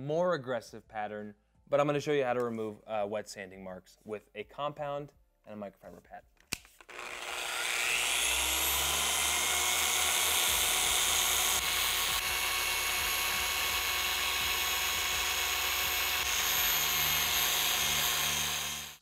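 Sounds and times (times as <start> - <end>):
polisher whining: 6.9 - 19.0.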